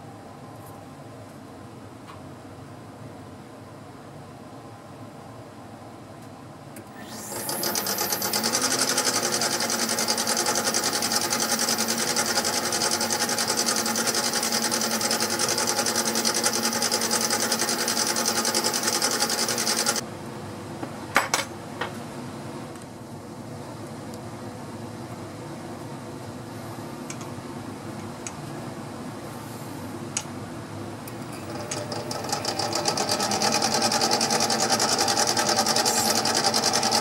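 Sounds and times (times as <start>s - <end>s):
lathe motor whine and rattle: 6.8s - 20.0s, 31.1s - 37.0s.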